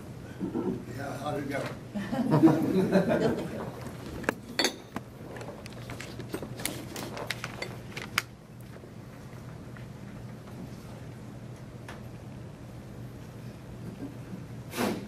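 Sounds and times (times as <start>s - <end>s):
glassware and dishes clinking: 4.4s - 5.0s.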